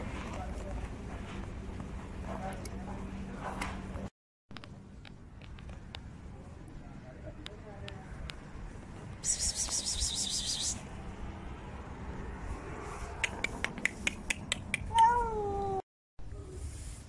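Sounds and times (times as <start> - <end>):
cat meowing: 14.9 - 15.8.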